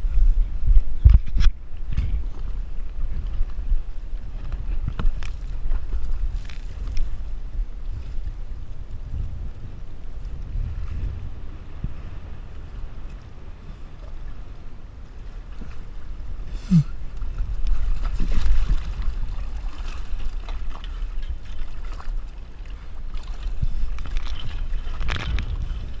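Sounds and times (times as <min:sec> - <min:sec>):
wind buffeting microphone: 0:00.0 - 0:26.0
water sloshing and splashing: 0:01.1 - 0:08.3, 0:15.1 - 0:26.0.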